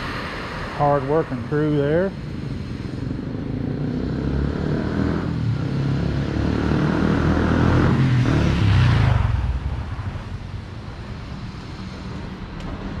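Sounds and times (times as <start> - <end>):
scooter engine passing by: 2.8 - 13.0.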